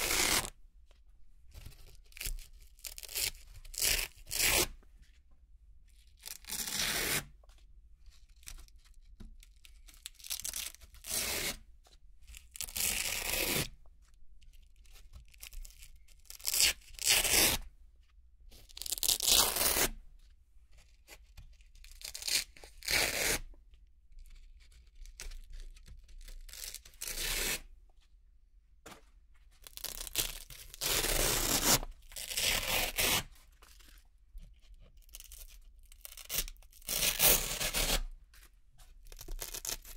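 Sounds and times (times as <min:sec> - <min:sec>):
velcro ripping: 0:00.0 - 0:00.5, 0:18.8 - 0:20.0, 0:22.0 - 0:23.4, 0:29.8 - 0:33.3, 0:35.1 - 0:38.1, 0:39.2 - 0:39.9.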